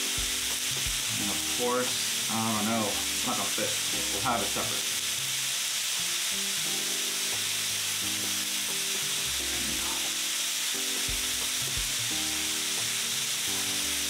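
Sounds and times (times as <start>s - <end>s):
beef sizzling on a grill plate: 0.0s - 14.0s
soft background music: 0.0s - 14.0s.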